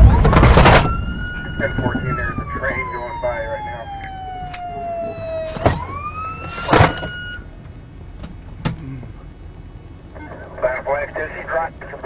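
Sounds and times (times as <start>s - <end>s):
loud bursts of noise: 0.0s - 7.1s
police siren wailing: 0.0s - 7.5s.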